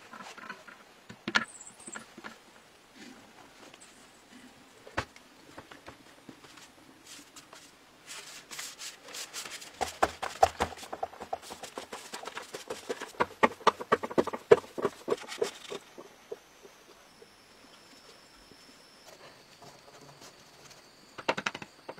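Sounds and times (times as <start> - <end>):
broom sweeping earth floor: 6.3 - 13.2.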